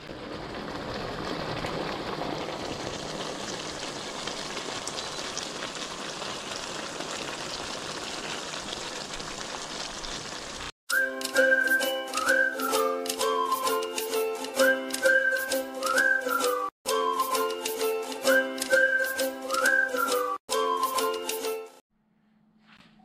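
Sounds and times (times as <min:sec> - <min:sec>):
stew bubbling in a pan: 0:00.0 - 0:10.8
upbeat jingle with whistling: 0:10.9 - 0:21.8.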